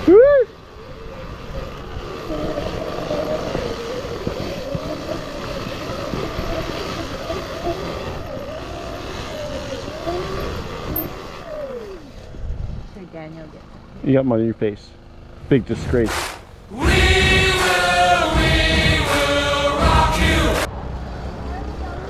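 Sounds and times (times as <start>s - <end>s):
wind and rumble: 0.0s - 11.5s, 12.2s - 14.0s
motorcycle engine running: 0.1s - 20.6s.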